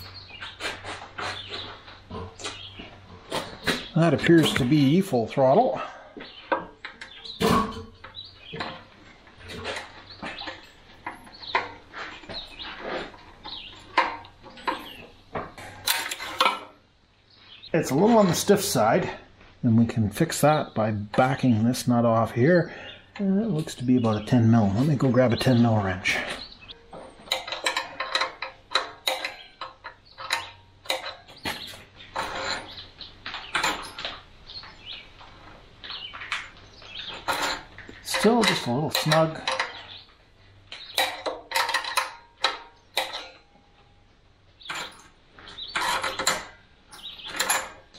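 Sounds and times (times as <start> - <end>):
bird chirps: 0.0 - 15.2, 22.6 - 27.5, 29.1 - 35.2, 35.8 - 41.2, 46.9 - 47.7
screwdriver and metal linkage clicks: 27.2 - 32.7, 37.2 - 39.8, 44.7 - 47.9.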